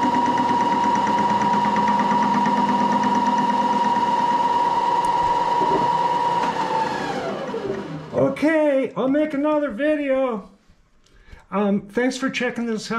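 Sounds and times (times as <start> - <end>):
machine spindle whine: 0.0 - 8.2.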